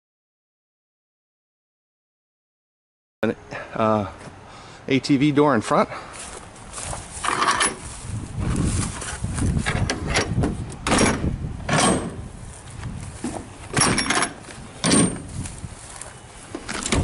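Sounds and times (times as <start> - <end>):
metal latch clanking: 9.7 - 12.2, 13.7 - 15.3, 16.6 - 17.0.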